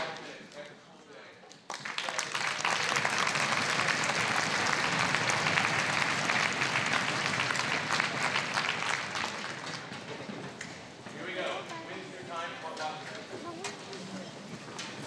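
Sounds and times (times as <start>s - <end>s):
large audience clapping: 1.5s - 10.8s.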